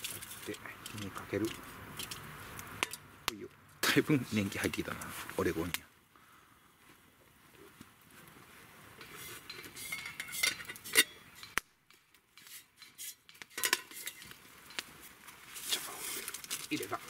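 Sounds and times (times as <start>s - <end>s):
metal pot and lid clinking: 9.5s - 11.6s, 12.8s - 14.8s.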